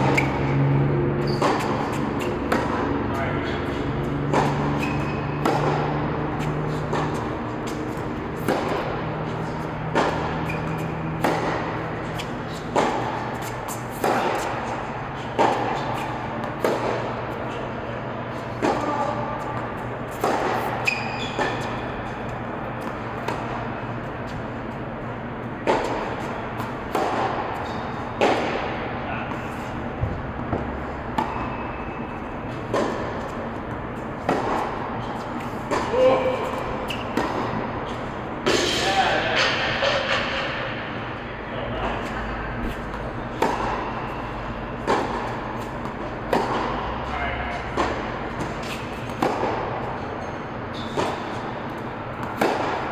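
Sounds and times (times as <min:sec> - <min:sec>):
racket hitting tennis ball: 0:00.0 - 0:52.9
ball bouncing on court: 0:01.2 - 0:03.2, 0:04.0 - 0:17.4, 0:18.5 - 0:23.7, 0:32.6 - 0:38.8, 0:42.8 - 0:52.9.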